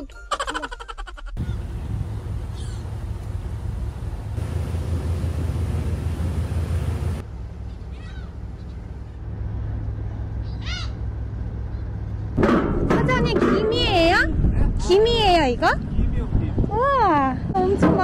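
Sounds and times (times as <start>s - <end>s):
wind: 0.0s - 18.0s
gulls calling: 0.5s - 3.3s, 10.4s - 11.2s
ferry engine droning: 1.4s - 14.0s.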